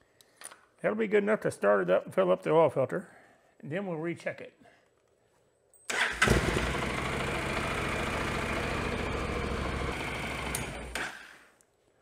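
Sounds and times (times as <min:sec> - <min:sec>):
motorcycle engine starting and idling: 0:05.9 - 0:11.4.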